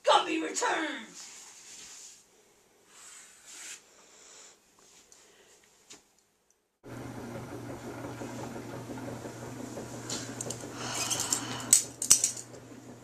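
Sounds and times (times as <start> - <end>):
rustling: 1.1 - 2.3
steady low hum: 6.8 - 13.0
light clattering: 9.5 - 13.0.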